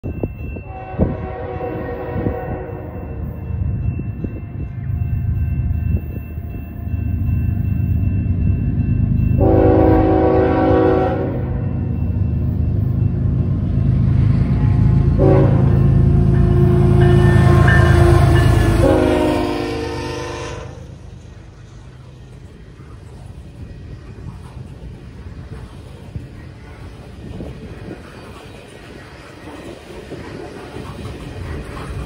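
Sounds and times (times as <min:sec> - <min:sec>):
diesel locomotive rumbling: 0:00.0 - 0:32.0
train air horn blasts: 0:00.6 - 0:03.2, 0:09.4 - 0:11.6, 0:15.2 - 0:21.0.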